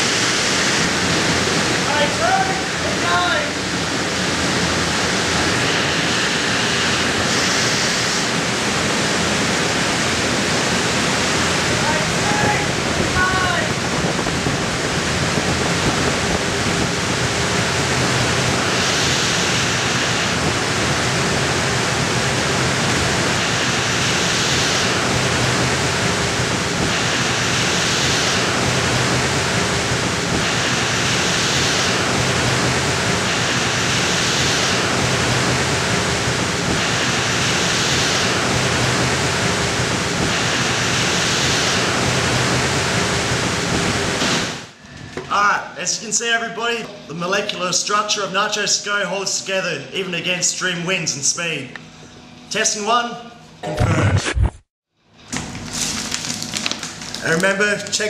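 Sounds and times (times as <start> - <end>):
low hum: 0.0 - 45.8
fans rushing air: 0.0 - 53.1
bright hiss: 4.9 - 8.6, 17.7 - 22.0.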